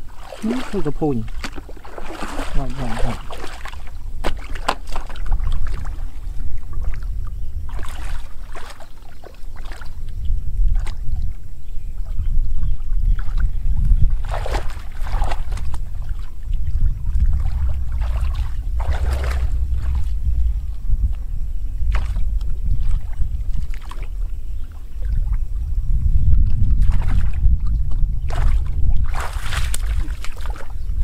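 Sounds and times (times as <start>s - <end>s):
water sloshing and splashing: 0.0s - 31.0s
wind rumble on microphone: 0.0s - 31.0s.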